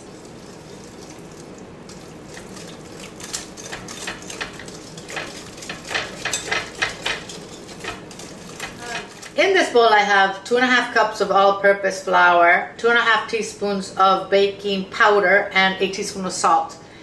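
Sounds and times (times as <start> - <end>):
whisk clicking against glass bowl: 2.3 - 9.3.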